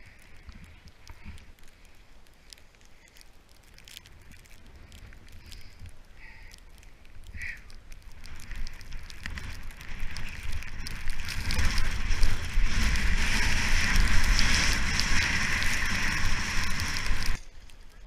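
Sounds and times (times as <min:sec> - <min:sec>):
wind rumble on microphone: 0:04.0 - 0:18.0
skis scraping over snow: 0:07.4 - 0:18.0.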